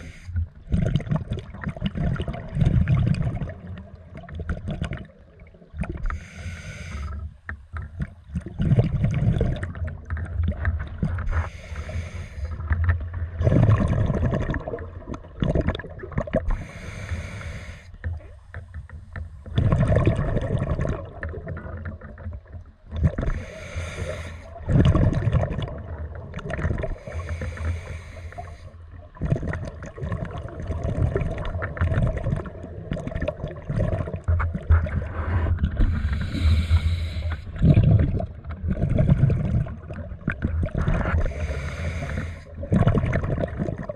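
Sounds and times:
regulator hissing inhale: 0.0s - 0.4s, 6.1s - 7.2s, 11.3s - 12.8s, 16.5s - 18.0s, 23.3s - 24.6s, 26.9s - 28.8s, 35.1s - 37.6s, 41.2s - 42.6s
bubbling exhale: 0.0s - 3.7s, 5.8s - 7.2s, 11.0s - 12.8s, 13.4s - 18.0s, 23.0s - 43.9s.

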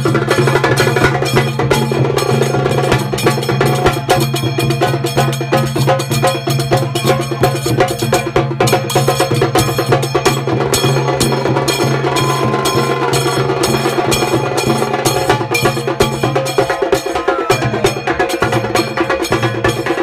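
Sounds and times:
hand cymbals clashing: 0.0s - 20.0s
bass drum drumming: 9.4s - 19.2s.

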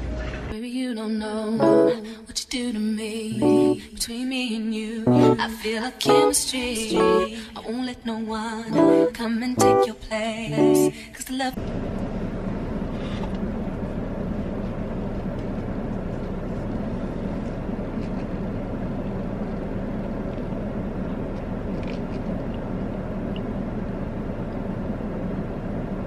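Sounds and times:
car engine idling: 11.6s - 26.0s.

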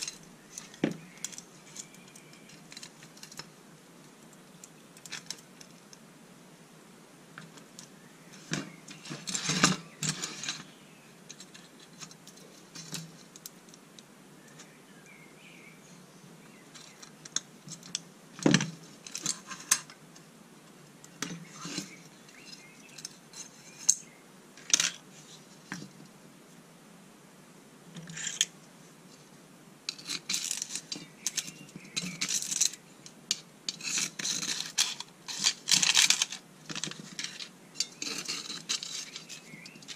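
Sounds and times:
metallic clicks and scrapes: 0.0s - 3.5s, 4.3s - 6.0s, 7.4s - 13.8s, 16.7s - 20.0s, 21.0s - 25.9s, 28.0s - 28.6s, 29.9s - 39.9s.

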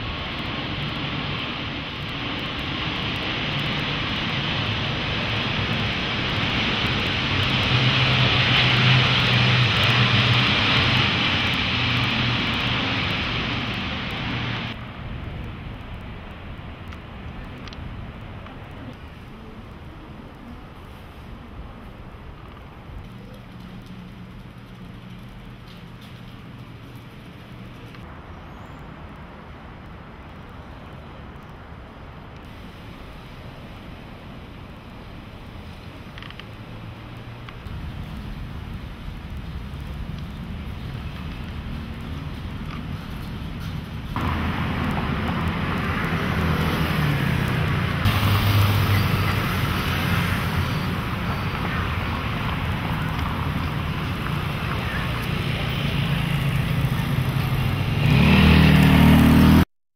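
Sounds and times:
aircraft engine roar overhead: 0.0s - 15.4s, 37.6s - 59.6s
distant city traffic rumble: 0.0s - 59.6s.

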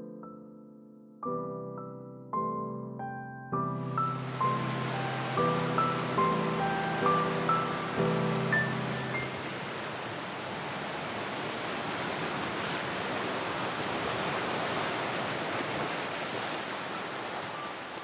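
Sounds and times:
surf washing over rocks: 4.0s - 18.0s.

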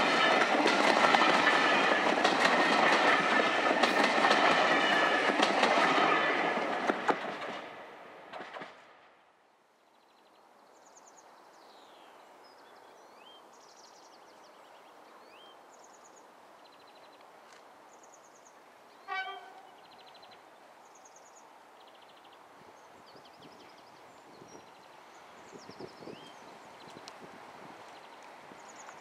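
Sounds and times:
songbirds singing and chirping: 9.8s - 29.0s
locomotive horn toot: 19.0s - 19.8s.

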